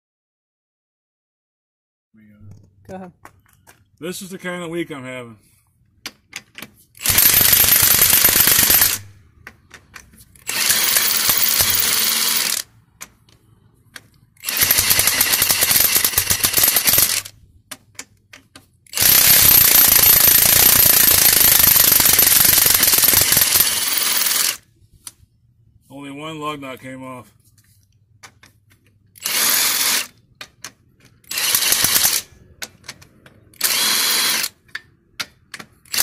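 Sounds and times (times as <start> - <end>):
impact wrench hammering: 14.5 - 24.5.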